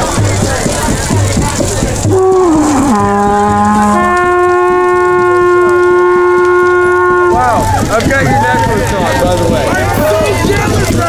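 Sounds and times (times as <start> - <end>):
horn-like held notes: 2.0 - 7.9.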